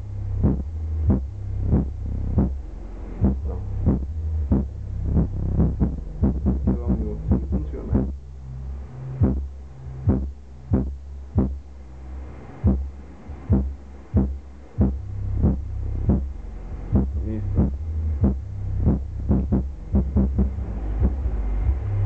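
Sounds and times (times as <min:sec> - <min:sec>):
subwoofer deep bass notes: 0:00.0 - 0:22.0
punchy beat: 0:00.4 - 0:02.6, 0:03.2 - 0:08.2, 0:09.2 - 0:09.5, 0:10.1 - 0:11.6, 0:12.6 - 0:16.3, 0:16.9 - 0:21.9.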